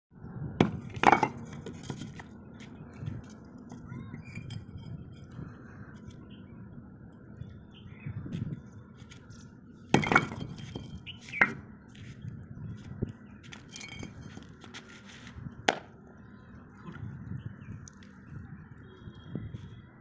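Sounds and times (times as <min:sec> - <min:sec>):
sharp brick impacts: 0:00.6 - 0:02.3, 0:09.9 - 0:11.7, 0:15.7 - 0:15.9
bricks scraping on concrete floor: 0:00.8 - 0:02.3, 0:09.9 - 0:11.6, 0:13.6 - 0:15.1.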